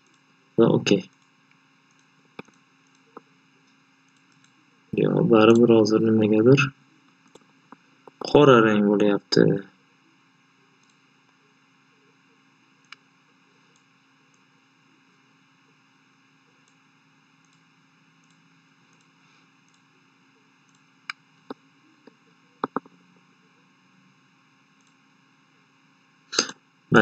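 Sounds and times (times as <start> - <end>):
computer mouse clicking: 1.9 - 3.3, 4.1 - 4.6, 10.8 - 11.0, 17.4 - 17.6, 20.7 - 22.9.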